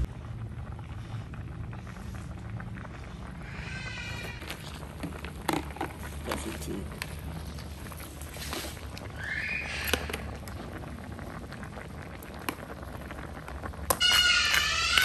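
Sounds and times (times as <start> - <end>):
ladle scraping with squeak: 14.0 - 15.0.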